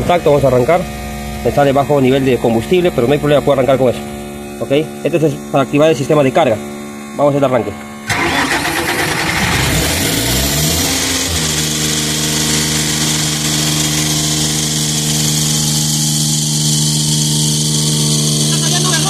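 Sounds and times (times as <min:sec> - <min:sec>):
air compressor engine running: 0:00.0 - 0:19.0
air compressor engine starting: 0:08.0 - 0:19.0.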